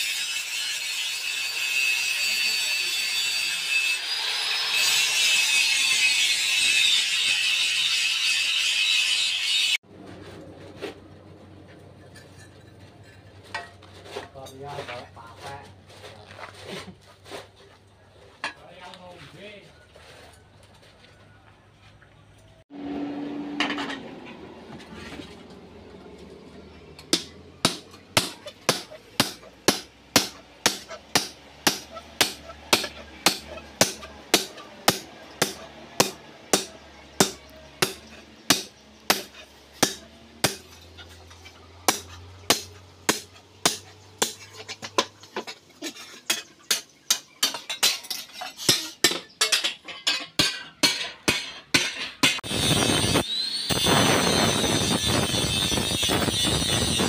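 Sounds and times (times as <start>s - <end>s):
hammers striking metal on anvil: 27.0s - 40.9s, 41.8s - 45.1s, 46.3s - 53.2s.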